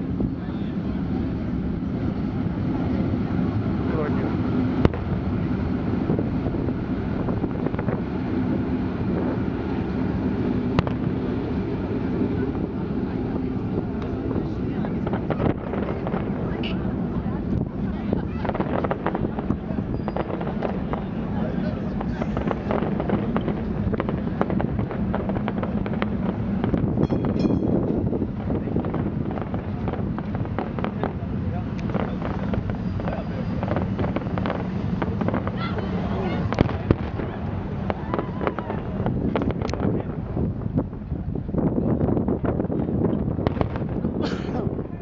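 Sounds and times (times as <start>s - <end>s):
wind on microphone: 0.0s - 45.0s
firework bang: 3.8s - 45.0s
firework whistle: 18.4s - 24.6s, 25.2s - 28.0s, 31.9s - 39.7s.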